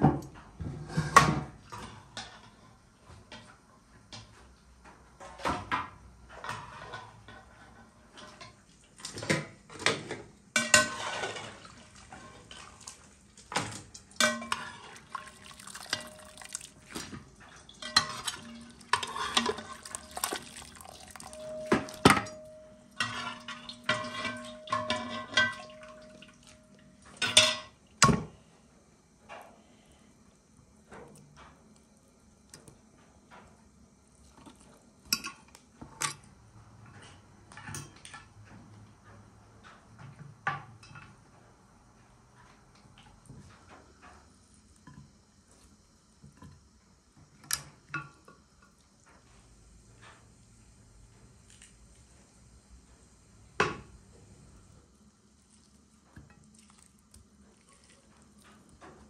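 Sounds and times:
metal cookware clattering: 9.2s - 12.5s, 13.5s - 16.6s, 17.4s - 28.2s
metal pan ringing: 21.1s - 27.6s.

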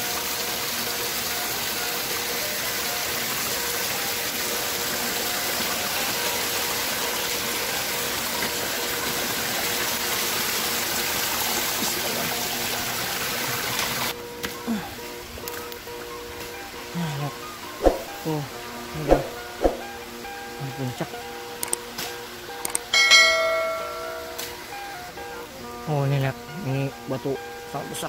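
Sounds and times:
water pouring over rocks: 0.0s - 14.1s.

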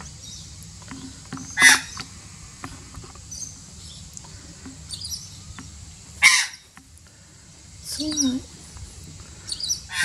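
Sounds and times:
magpie squawk: 1.6s - 2.0s, 6.2s - 6.6s, 9.6s - 10.0s
faint high bird chirps: 4.9s - 6.7s, 7.8s - 8.5s, 9.4s - 10.0s.

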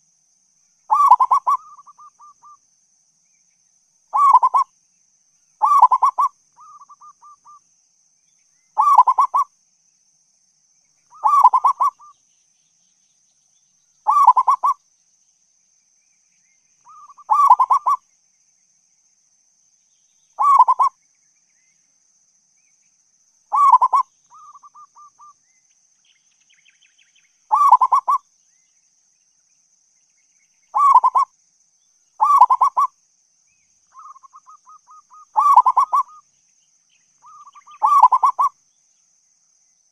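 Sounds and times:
dove cooing: 0.9s - 2.3s, 4.2s - 4.6s, 5.6s - 7.4s, 8.8s - 9.4s, 11.2s - 12.1s, 14.1s - 14.8s, 16.9s - 18.0s, 20.4s - 20.9s, 23.5s - 25.3s, 27.5s - 28.2s, 30.8s - 31.3s, 32.2s - 32.9s, 34.0s - 36.2s, 37.3s - 38.5s.

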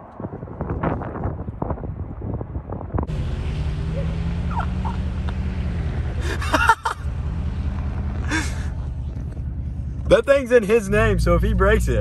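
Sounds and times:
tyre and wind noise: 0.0s - 3.1s
vehicle engine drone: 0.0s - 12.0s.

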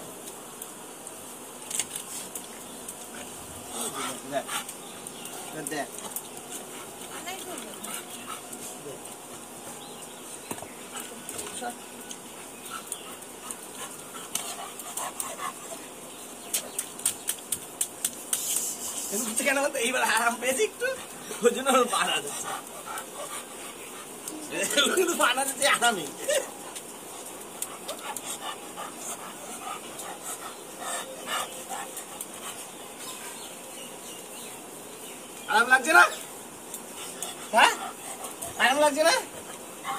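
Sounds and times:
dog panting: 3.1s - 9.1s, 10.8s - 15.9s, 20.2s - 25.0s, 26.5s - 33.5s, 36.8s - 39.9s.

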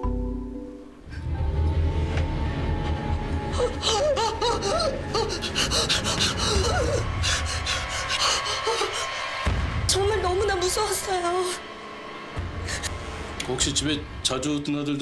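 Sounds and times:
low dark music drone: 0.0s - 15.0s
woman gasping and whimpering: 3.5s - 9.1s.

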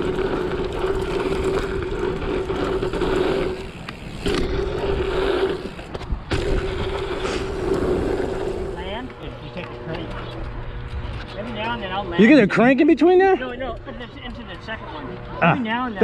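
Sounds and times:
bike tyres on dirt: 0.0s - 12.6s
buzzing hum from bike: 0.0s - 16.0s.

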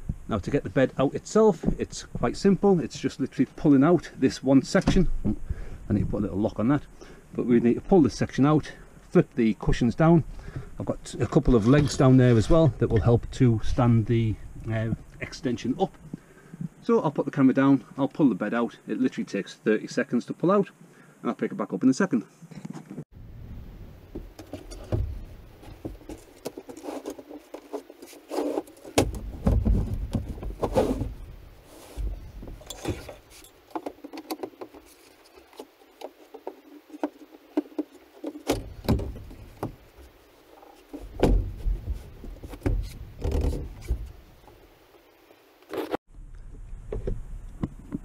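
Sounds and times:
wood knocking and rattling: 28.6s - 31.2s, 35.5s - 39.9s, 40.8s - 44.2s
heavy thuds: 41.0s - 44.1s.

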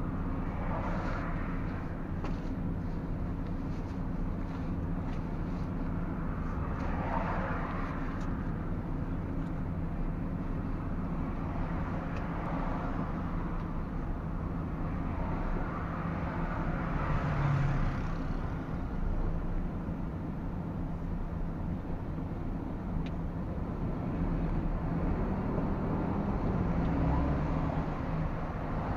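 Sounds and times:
diesel truck engine running: 0.0s - 16.8s
tyre and road noise: 0.0s - 28.9s.

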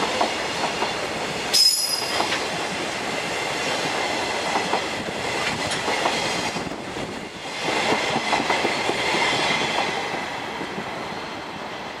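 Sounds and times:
faint ringing from train wheels: 0.0s - 2.7s
train wheels clacking over rail joints: 0.0s - 2.8s, 3.5s - 11.0s.

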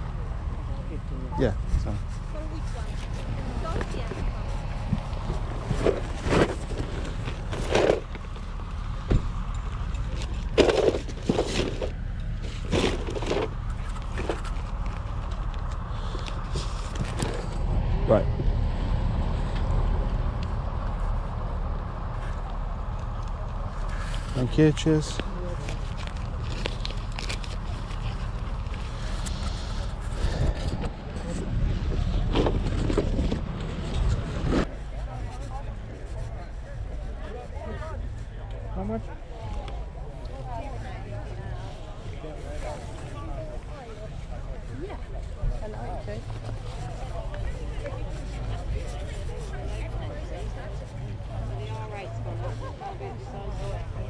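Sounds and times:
knocks and scrapes: 1.7s - 15.4s, 16.3s - 17.6s, 25.6s - 36.3s
wind rumble on microphone: 26.0s - 36.2s.

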